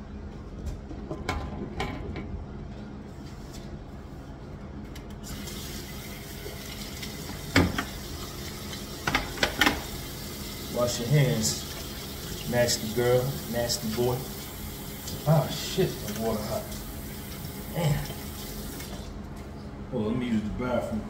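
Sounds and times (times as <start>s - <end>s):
water running into sink: 5.2s - 19.1s.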